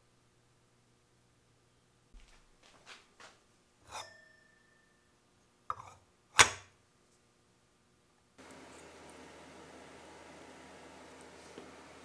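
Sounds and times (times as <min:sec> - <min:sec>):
brief metallic ring: 0:03.9 - 0:05.1.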